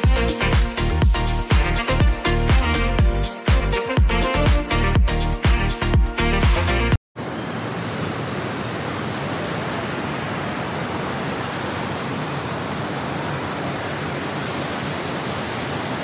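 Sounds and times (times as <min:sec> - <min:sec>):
waterfall rushing: 0:07.2 - 0:16.0.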